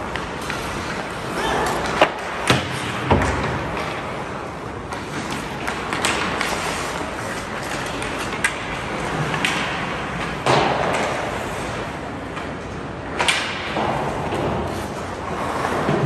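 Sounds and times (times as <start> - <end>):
skates scraping on ice: 0.0 - 12.7, 13.5 - 16.0
stick and puck knocks: 1.8 - 4.1, 7.7 - 11.3, 13.2 - 14.7.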